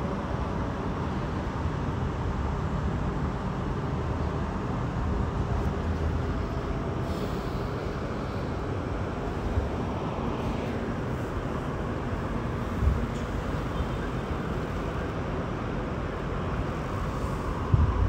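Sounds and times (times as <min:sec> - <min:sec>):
distant city traffic: 0:00.0 - 0:18.0.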